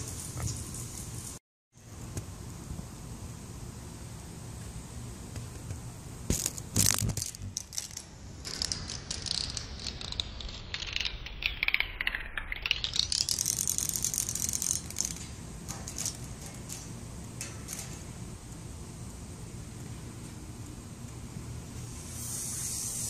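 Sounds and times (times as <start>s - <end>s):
cicada clicking buzz: 12.7s - 15.3s.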